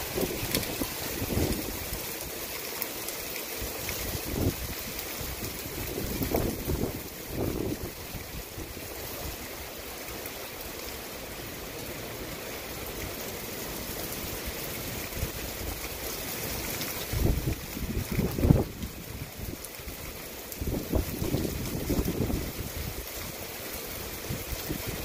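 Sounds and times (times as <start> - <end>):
wind buffeting microphone: 0.0 - 2.0, 4.0 - 8.8, 17.1 - 19.6, 20.6 - 23.1
steady rain falling: 0.0 - 25.0.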